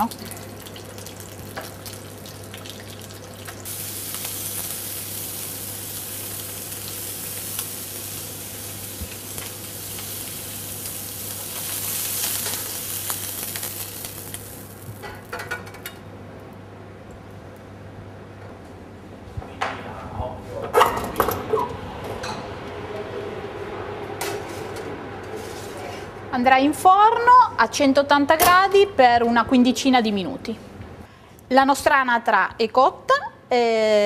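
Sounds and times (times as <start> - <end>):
meat sizzling in hot oil: 0.0 - 15.4.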